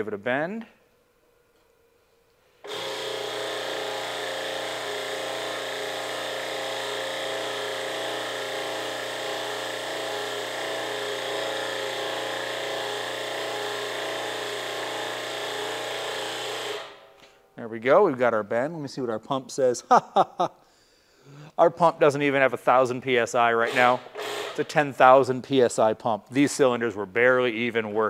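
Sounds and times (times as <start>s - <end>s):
hydraulic pump humming: 2.6s - 17.1s, 23.6s - 24.8s.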